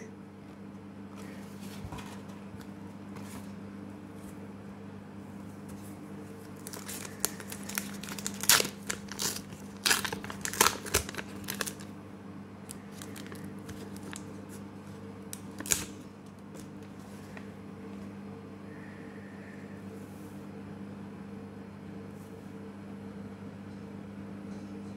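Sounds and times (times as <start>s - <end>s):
wrapper crinkling and tearing: 6.6s - 11.9s, 12.7s - 14.4s, 15.3s - 16.0s.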